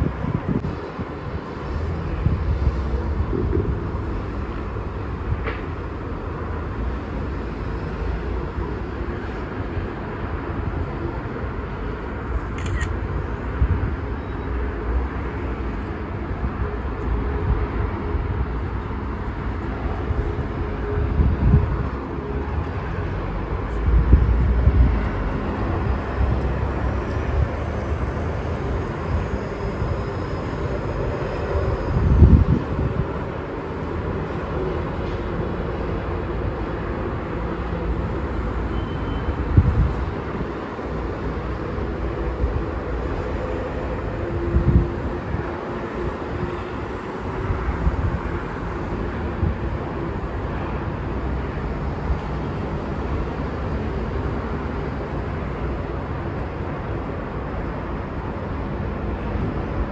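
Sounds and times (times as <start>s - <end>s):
wind buffeting microphone: 0.0s - 5.4s, 16.1s - 35.0s, 39.4s - 50.3s
city traffic rushing: 0.0s - 59.9s.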